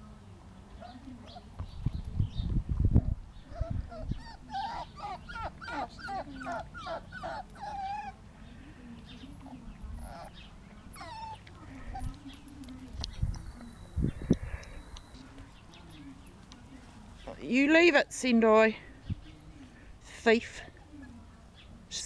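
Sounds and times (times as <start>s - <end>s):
puppy whining: 3.4s - 8.2s, 10.0s - 12.2s.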